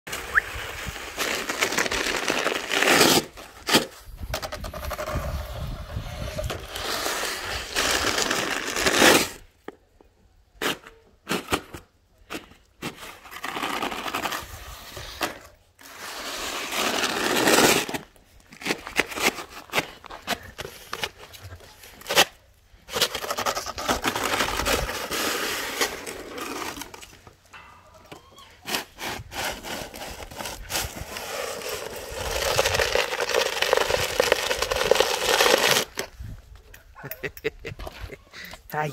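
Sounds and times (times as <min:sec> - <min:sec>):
snow shovel scraping driveway: 0:00.1 - 0:04.1, 0:04.7 - 0:09.4, 0:12.3 - 0:22.3, 0:22.9 - 0:27.3, 0:28.6 - 0:36.2.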